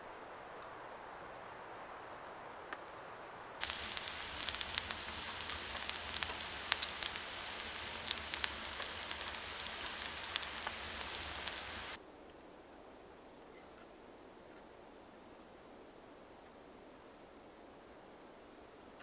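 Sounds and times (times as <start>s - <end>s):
vegetables frying in a pan: 3.6s - 12.0s.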